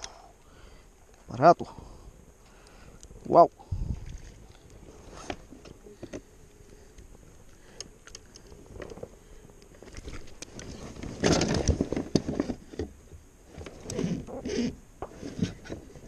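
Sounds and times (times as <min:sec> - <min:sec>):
small clicks: 0:05.6 - 0:09.0
fish flapping against plastic hull: 0:09.8 - 0:12.9.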